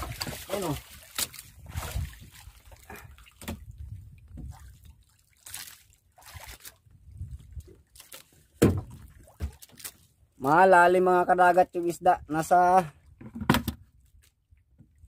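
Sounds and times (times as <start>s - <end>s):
water sloshing against wooden boat: 0.0s - 15.0s.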